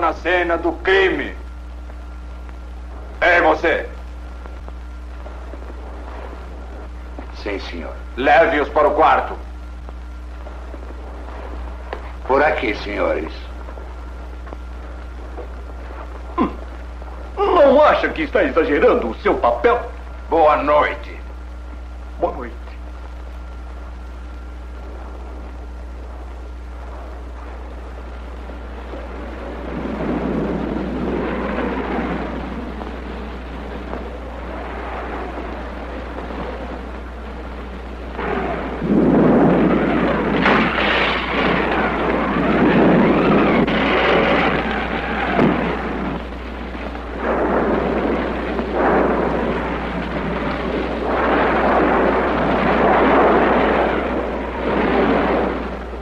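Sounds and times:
low hum: 0:00.0 - 0:56.0
rumbling thunder: 0:00.9 - 0:21.6, 0:24.2 - 0:56.0.

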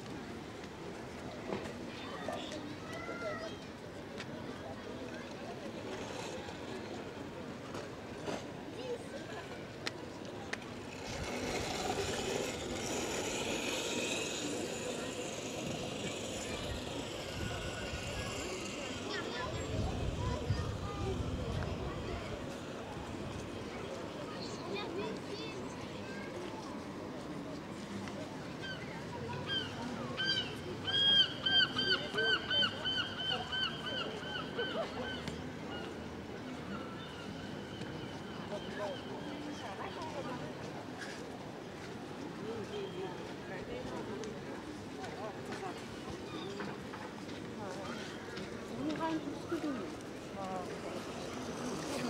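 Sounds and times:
outdoor background noise: 0:00.0 - 0:52.0
indistinct voices: 0:10.4 - 0:25.8.

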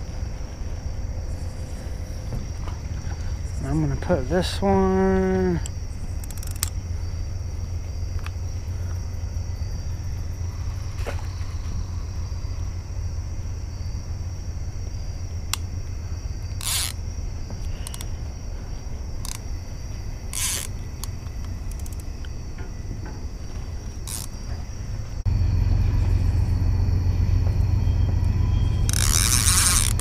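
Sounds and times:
low rumble: 0:00.0 - 0:21.7, 0:22.4 - 0:30.0
night insects chorus: 0:00.0 - 0:30.0
fishing gear scraping and clicking: 0:05.6 - 0:06.8, 0:16.5 - 0:17.0, 0:17.6 - 0:18.1, 0:19.2 - 0:19.5, 0:20.3 - 0:22.3, 0:23.8 - 0:24.6, 0:28.9 - 0:30.0.

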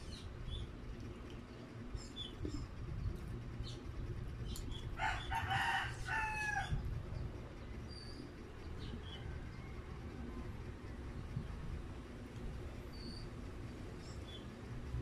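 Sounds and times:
rooster crowing: 0:05.0 - 0:06.9.

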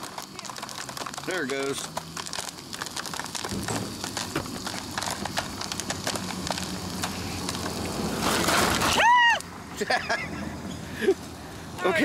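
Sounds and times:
popcorn popping in a pan: 0:00.0 - 0:08.0.

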